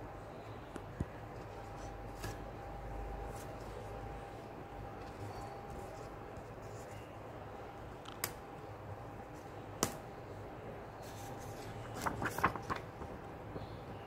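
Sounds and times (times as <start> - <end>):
sharp taps on paper: 9.8 - 10.0.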